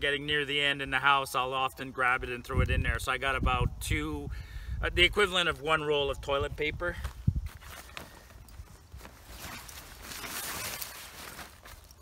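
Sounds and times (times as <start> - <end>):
fabric rustling: 7.4 - 12.0
zipper being pulled open: 9.0 - 11.9.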